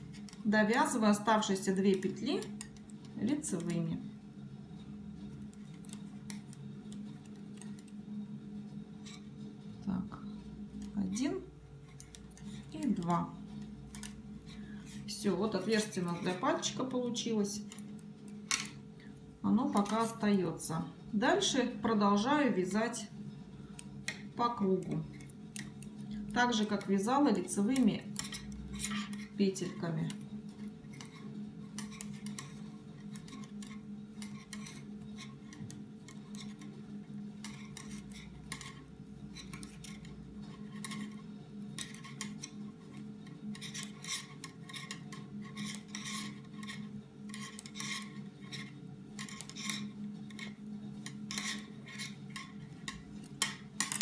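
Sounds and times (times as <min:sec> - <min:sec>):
steady low hum: 0:00.0 - 0:54.0
metal knitting needles clicking: 0:11.9 - 0:13.2, 0:13.9 - 0:14.2, 0:19.7 - 0:20.2, 0:24.8 - 0:30.2.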